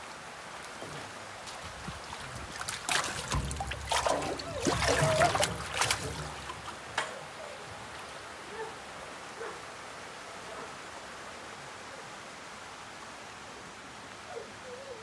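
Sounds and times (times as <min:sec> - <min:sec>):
fish splashing in water tank: 0:00.6 - 0:08.0.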